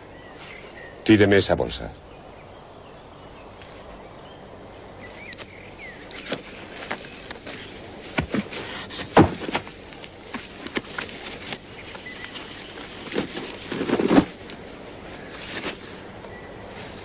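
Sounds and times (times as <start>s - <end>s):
leather bag rummaging: 6.2s - 14.5s
thuds: 8.1s - 11.0s, 13.1s - 14.4s.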